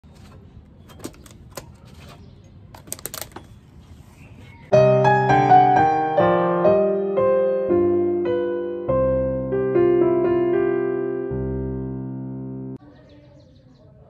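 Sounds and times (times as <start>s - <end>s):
piano music: 4.7s - 12.8s.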